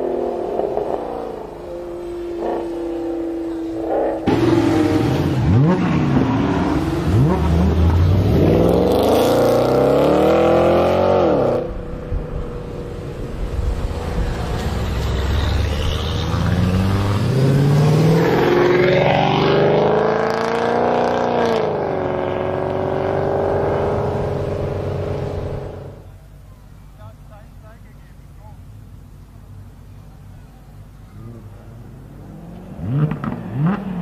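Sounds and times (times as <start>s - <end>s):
car engines accelerating hard: 0.0s - 26.1s, 28.8s - 34.0s.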